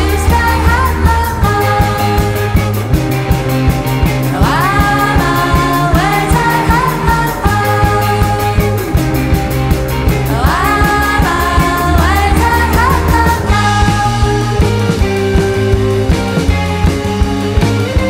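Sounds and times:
background music with beat and bass: 0.0s - 18.0s.

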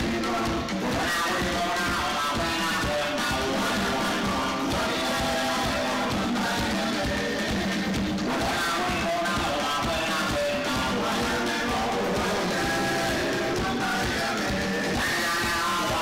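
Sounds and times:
drum kit steady beat: 0.0s - 16.0s.

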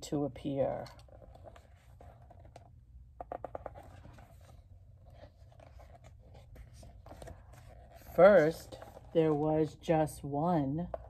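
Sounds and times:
paper rustling: 1.0s - 9.8s.

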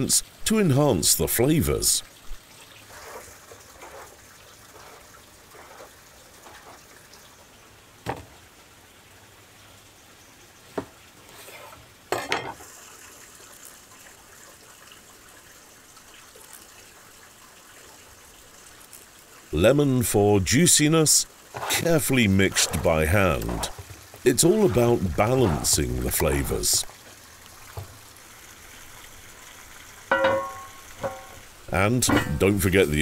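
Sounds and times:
faint steady hiss: 0.0s - 33.0s.

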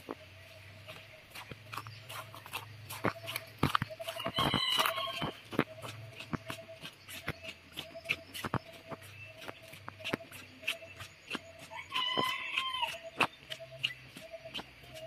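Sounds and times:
footsteps on gravel path: 0.0s - 15.0s
chicken calling: 3.0s - 6.9s, 11.6s - 15.0s.

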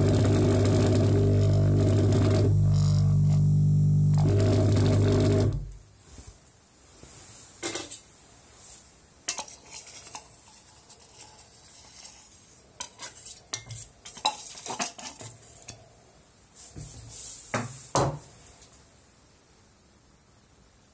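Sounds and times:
machine humming: 0.0s - 5.8s
knife scraping a plastic cup: 9.3s - 15.8s.

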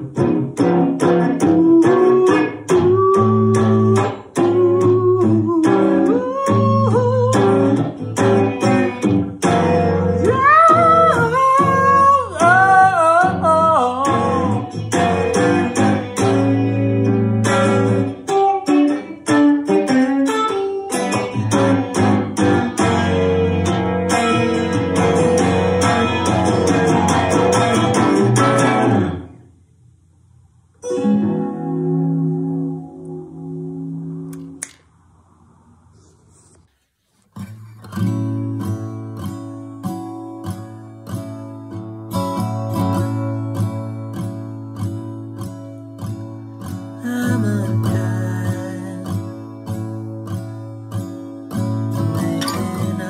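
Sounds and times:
electric guitar strumming: 0.0s - 29.6s, 30.8s - 35.3s, 37.4s - 53.0s
man singing wordlessly: 1.3s - 8.0s, 9.8s - 15.1s, 47.0s - 49.4s, 52.3s - 53.0s.

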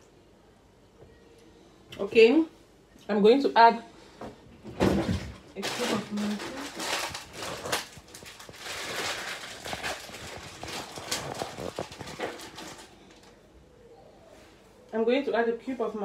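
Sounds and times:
packaging rustling: 5.0s - 13.4s.

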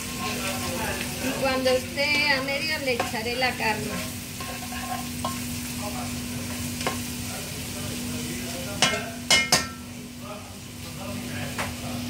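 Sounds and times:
eggplant sizzling in a pan: 0.0s - 12.0s
utensil knocking against pan: 8.8s - 9.9s.

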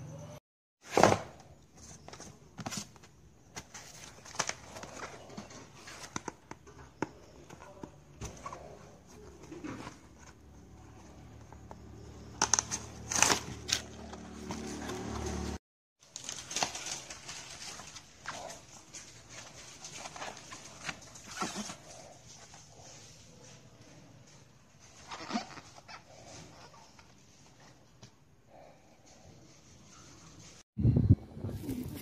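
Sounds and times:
cardboard crackles: 0.9s - 23.0s
cardboard box rustling and creaking: 1.0s - 23.4s.

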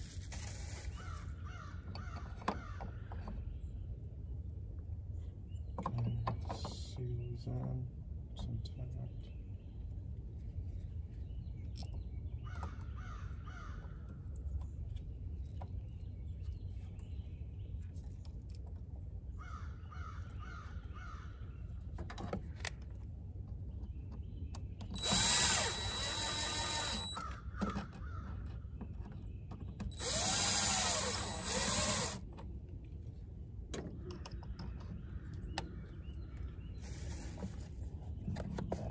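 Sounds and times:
cordless drill running: 25.0s - 27.2s, 29.9s - 32.2s.

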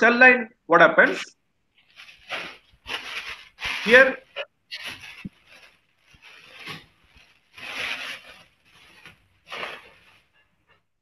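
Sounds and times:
rubbing scraping noise: 1.9s - 10.8s.

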